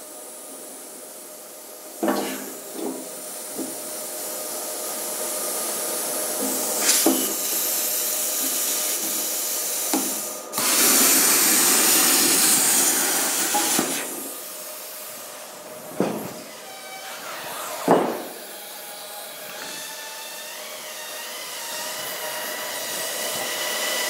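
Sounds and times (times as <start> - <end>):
plasma cutter hissing: 0.1 - 15.6.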